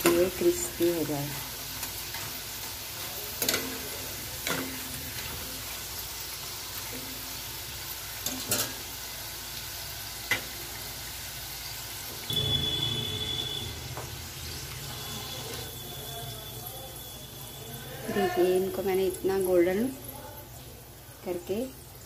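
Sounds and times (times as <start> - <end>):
fries sizzling in oil: 0.0 - 22.0
metal spoon clinking on pan: 3.4 - 5.4, 8.2 - 8.8.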